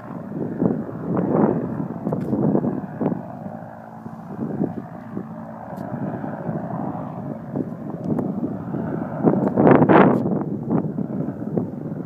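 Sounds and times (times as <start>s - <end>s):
propeller engines droning: 0.0s - 12.0s
wind buffeting microphone: 0.0s - 12.0s.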